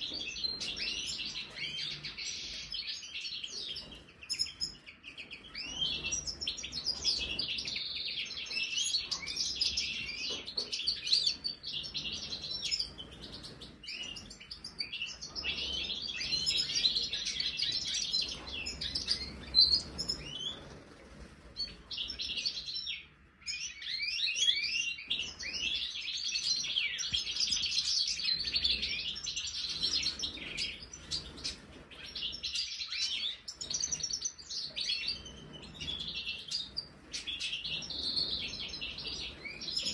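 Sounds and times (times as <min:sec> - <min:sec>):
goldfinches chirping and trilling: 0:00.0 - 0:39.9.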